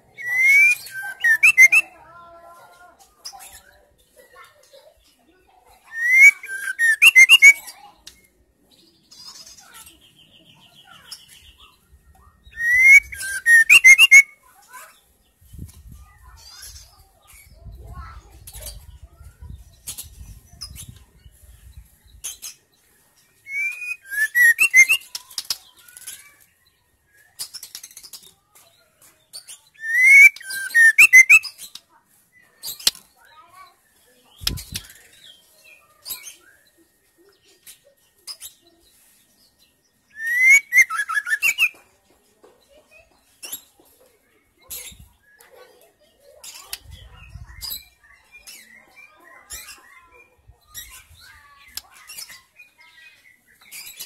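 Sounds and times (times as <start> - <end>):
bird whistling and chattering: 0.0 - 2.0, 5.8 - 7.8, 12.4 - 14.4, 23.4 - 26.2, 29.7 - 31.8, 34.3 - 35.2, 40.1 - 41.8.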